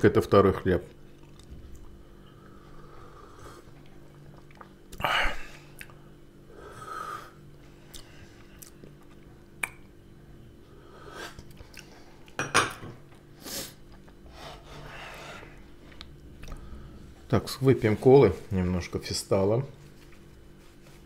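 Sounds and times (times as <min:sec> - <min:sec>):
person sipping and swallowing: 0:15.9 - 0:16.7.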